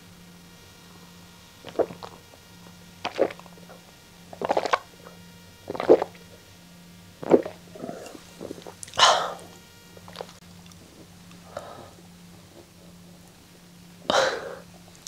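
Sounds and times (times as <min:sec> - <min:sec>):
person gulping drink: 0:01.6 - 0:02.2, 0:03.1 - 0:03.5, 0:04.4 - 0:04.8, 0:05.7 - 0:06.2, 0:07.2 - 0:09.5.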